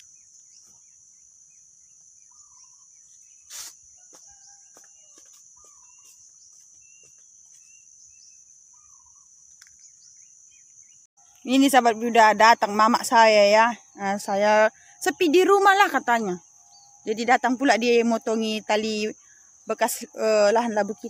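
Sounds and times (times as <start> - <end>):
faint chirps: 0.0 - 21.0
short bird call: 3.5 - 3.8.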